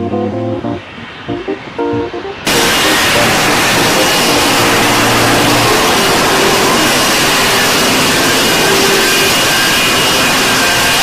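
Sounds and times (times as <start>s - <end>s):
faint high whine: 0.0s - 11.0s
hovering jet engine noise: 0.0s - 11.0s.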